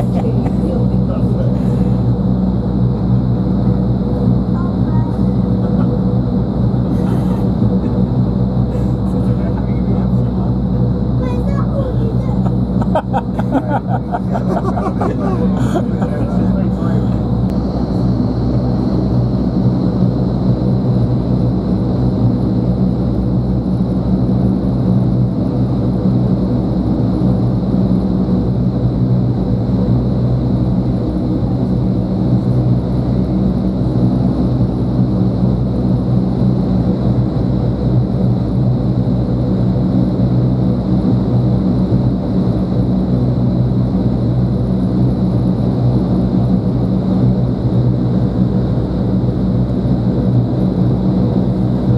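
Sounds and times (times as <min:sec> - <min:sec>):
rush of air from fans: 0:00.0 - 0:02.5, 0:06.7 - 0:09.6
low fan hum: 0:00.0 - 0:51.9.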